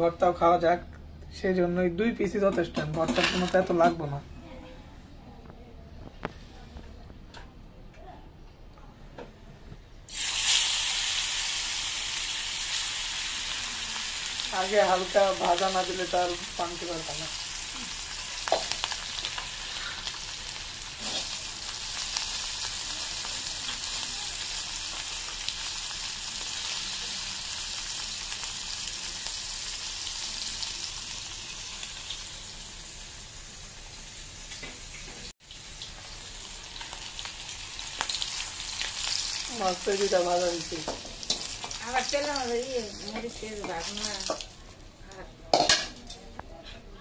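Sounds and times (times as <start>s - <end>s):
fish sizzling in hot oil: 10.1s - 44.8s
spatula scraping a wok: 20.9s - 21.5s.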